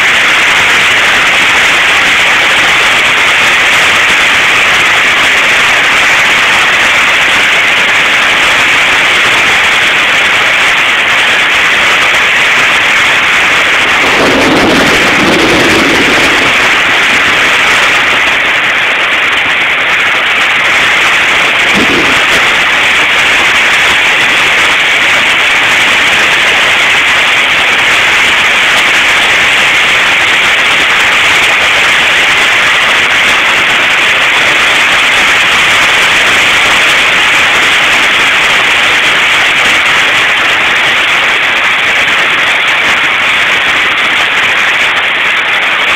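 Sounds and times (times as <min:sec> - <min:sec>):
heavy rain on a roof: 0:00.0 - 0:45.9
short low-pitched sound: 0:13.4 - 0:18.2, 0:21.3 - 0:23.0.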